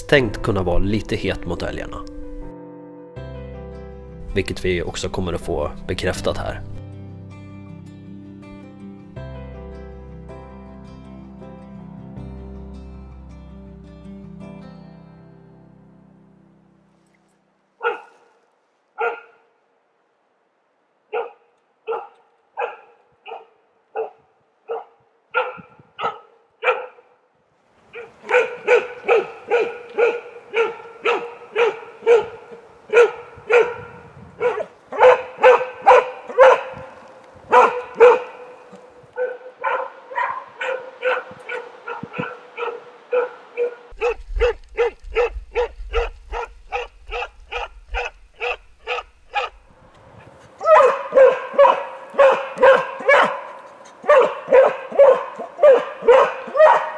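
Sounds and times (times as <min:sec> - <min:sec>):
dog barking: 0:17.8 - 0:18.2, 0:19.0 - 0:19.4, 0:21.1 - 0:27.2, 0:27.9 - 0:49.6, 0:50.6 - 0:56.9.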